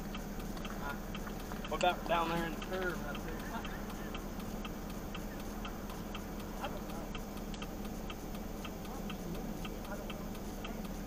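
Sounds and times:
engine humming: 0:00.0 - 0:11.0
indicator relay clicking: 0:00.0 - 0:11.0.

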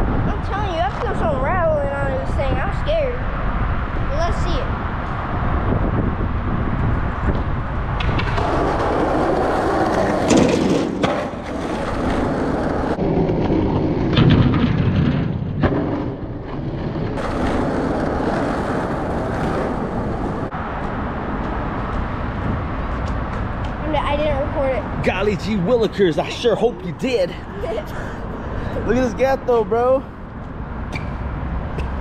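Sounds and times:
skateboard wheels rolling on pavement: 0:00.0 - 0:32.0
skateboard clacking against ground: 0:08.0 - 0:13.0.

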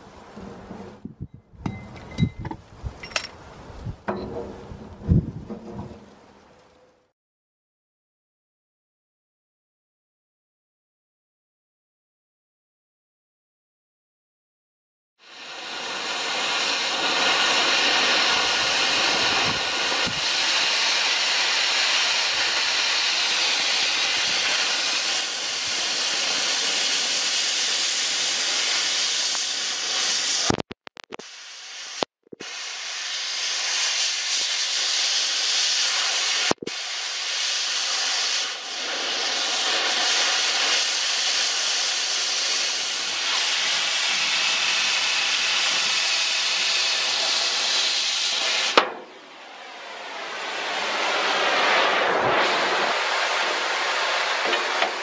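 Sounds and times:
cutting torch hissing: 0:15.2 - 0:55.0.

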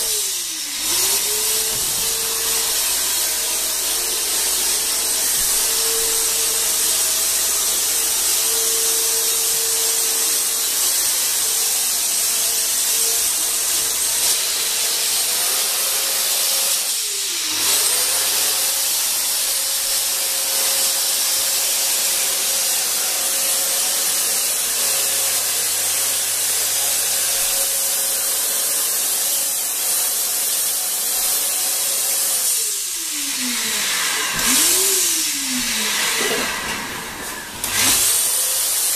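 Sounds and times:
fogger motor whine: 0:00.0 - 0:12.0, 0:32.6 - 0:38.3.

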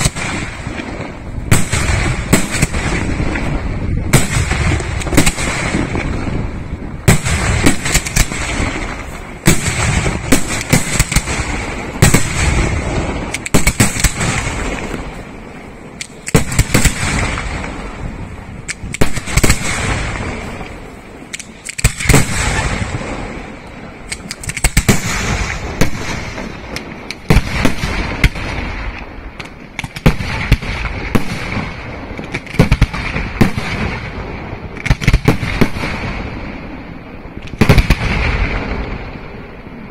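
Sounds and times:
firework shells booming: 0:00.0 - 0:39.6.

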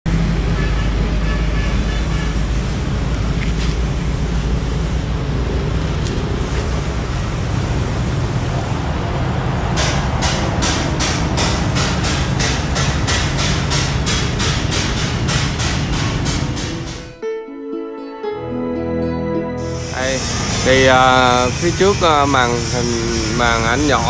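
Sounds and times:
engine rumbling: 0:00.1 - 0:17.2.

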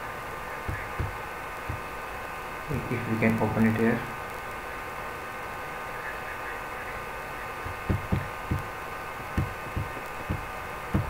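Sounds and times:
steady electrical hum: 0:00.0 - 0:11.0
soft low knocks: 0:00.7 - 0:01.9, 0:07.6 - 0:11.0.

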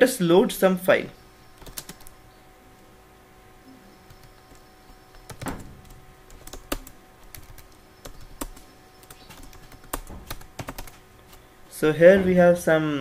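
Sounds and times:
keyboard keystrokes clicking: 0:01.6 - 0:02.1, 0:04.1 - 0:11.0.

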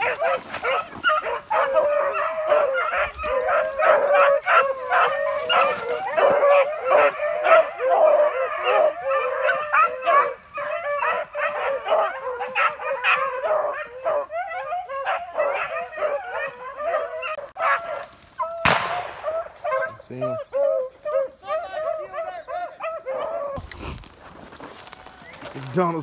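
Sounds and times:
hounds baying: 0:00.0 - 0:26.0
sharp crack: 0:18.6 - 0:19.9.

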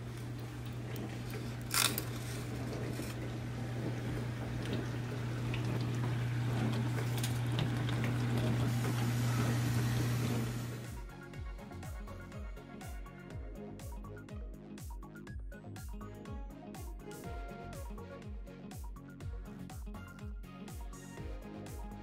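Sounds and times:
aluminium foil crinkling: 0:01.0 - 0:03.3
sharp crackle: 0:01.6 - 0:03.2.

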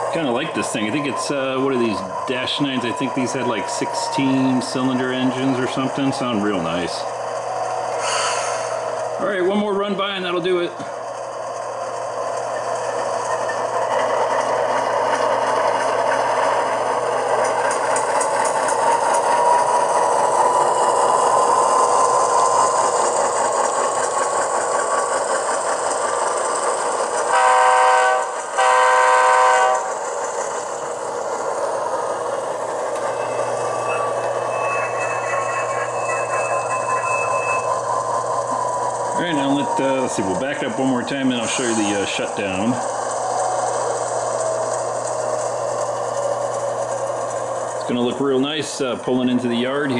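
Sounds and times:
model locomotive diesel engine sound: 0:00.0 - 0:49.9
locomotive horn blasts: 0:27.3 - 0:29.9.

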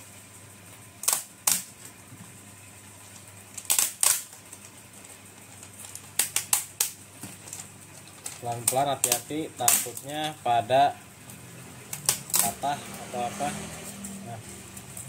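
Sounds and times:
plastic clicks and snaps: 0:05.8 - 0:10.1.

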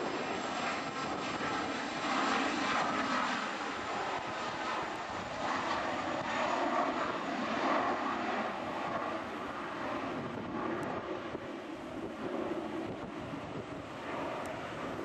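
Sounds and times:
jet engines at takeoff power: 0:00.0 - 0:15.0.

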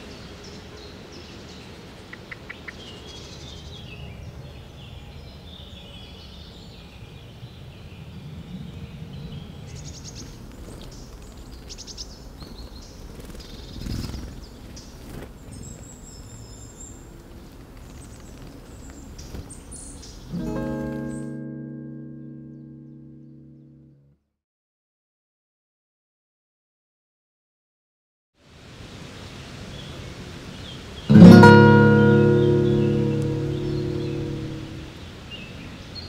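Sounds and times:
songbirds chirping and trilling: 0:00.0 - 0:21.4, 0:29.6 - 0:36.0.

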